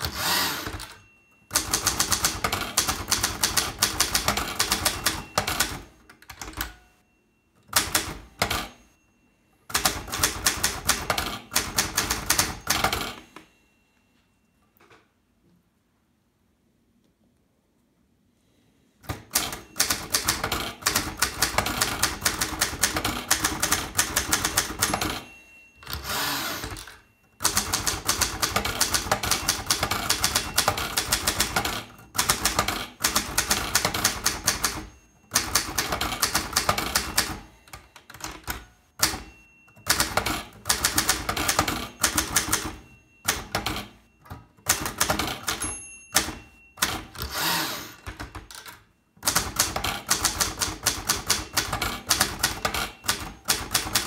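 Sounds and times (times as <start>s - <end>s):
manual typewriter typing: 0.0s - 6.8s, 7.7s - 8.8s, 9.7s - 13.3s, 19.1s - 54.0s.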